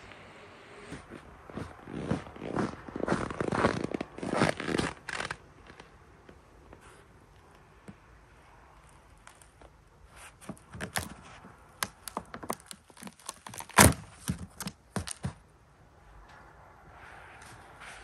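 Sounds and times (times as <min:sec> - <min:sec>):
hands handling items on a table: 0:08.8 - 0:15.5.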